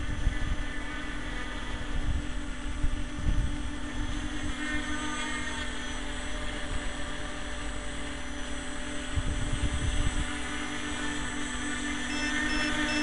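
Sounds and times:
electric motors and propellers humming: 0.0s - 13.0s
wind buffeting microphone: 1.7s - 4.6s, 9.0s - 10.6s.

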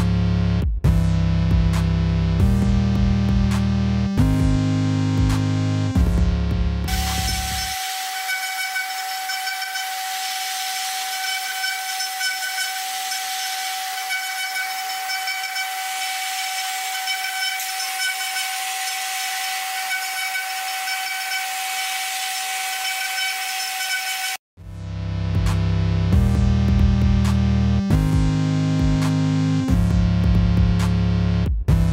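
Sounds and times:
engraving spindle whining: 6.9s - 24.4s.

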